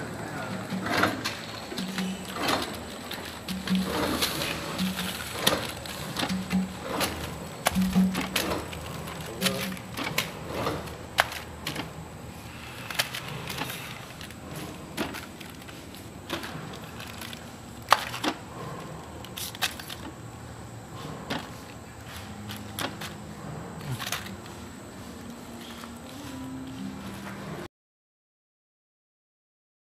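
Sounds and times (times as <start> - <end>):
plastic sachets tapping and crinkling: 1.2 - 10.3.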